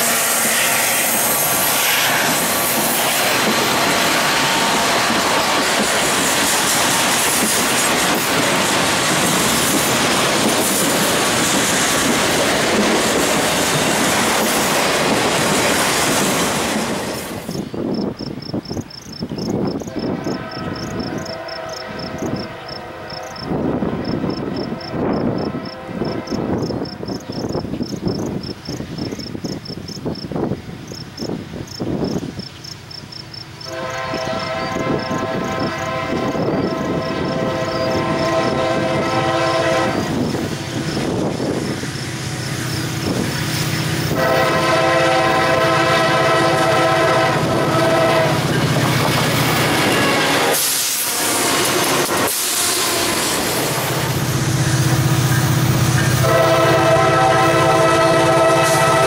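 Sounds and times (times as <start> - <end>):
locomotive air horn blasts: 0.0 - 2.3, 19.9 - 27.1, 33.6 - 41.2, 44.0 - 48.8, 49.8 - 53.2, 54.2 - 59.0
train rumble: 0.0 - 59.0
crickets chirping: 17.4 - 44.8.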